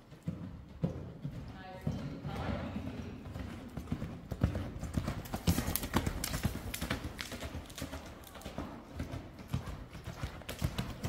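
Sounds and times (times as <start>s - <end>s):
horse hoofbeats on dirt: 0.0s - 11.0s.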